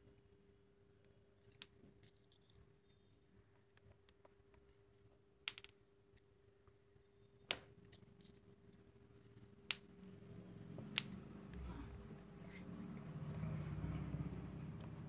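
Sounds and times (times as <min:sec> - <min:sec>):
faint steady hum: 0:00.0 - 0:15.0
sharp snapping clicks: 0:07.5 - 0:07.7, 0:10.9 - 0:11.6.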